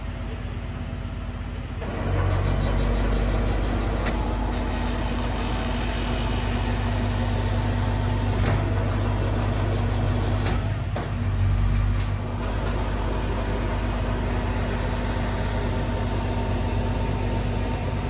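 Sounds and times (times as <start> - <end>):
truck low mechanical hum: 0.0 - 18.0.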